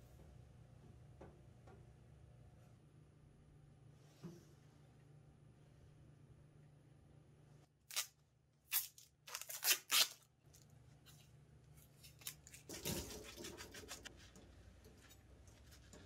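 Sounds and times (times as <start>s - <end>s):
tape ripping: 7.9s - 10.3s.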